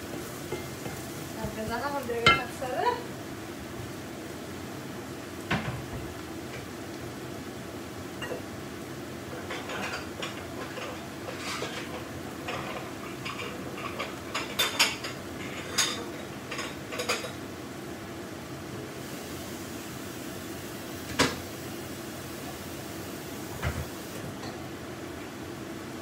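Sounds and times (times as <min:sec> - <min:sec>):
dishes and utensils clattering: 0:02.2 - 0:02.5, 0:09.3 - 0:17.4.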